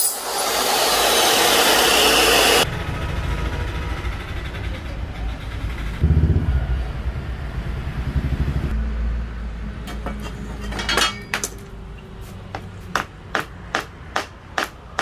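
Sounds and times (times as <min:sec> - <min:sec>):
low rumble: 0:05.7 - 0:08.8.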